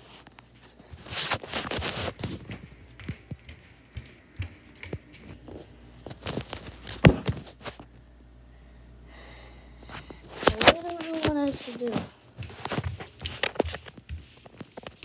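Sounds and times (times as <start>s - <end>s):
footsteps: 0.0s - 7.9s, 9.8s - 15.0s.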